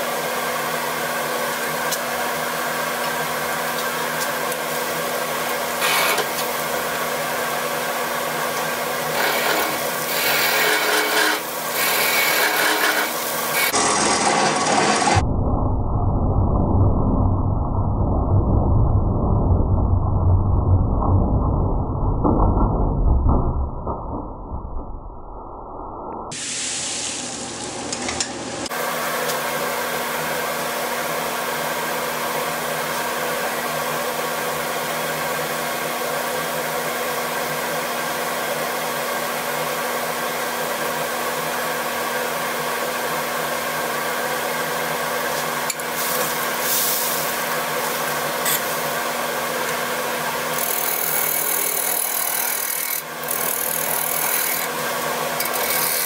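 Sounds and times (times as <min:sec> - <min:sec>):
tool scraping spinning wood: 0:05.3 - 0:07.0, 0:08.3 - 0:15.2, 0:45.3 - 0:56.0
wood lathe motor hum: 0:08.6 - 0:15.2, 0:49.6 - 0:56.0.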